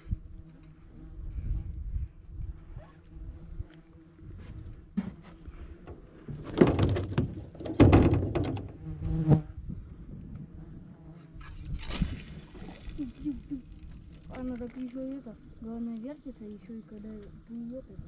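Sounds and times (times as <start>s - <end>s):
insect buzzing: 0.0s - 9.6s, 10.2s - 18.0s
loud knocks and rustles: 5.0s - 8.9s.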